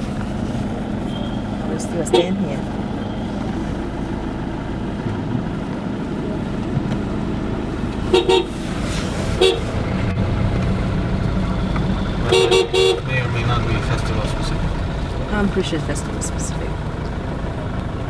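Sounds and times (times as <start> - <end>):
car driving rumble: 0.0 - 18.0
vehicle horn tooting: 1.0 - 3.3, 8.1 - 8.6, 9.3 - 9.7, 12.2 - 13.3.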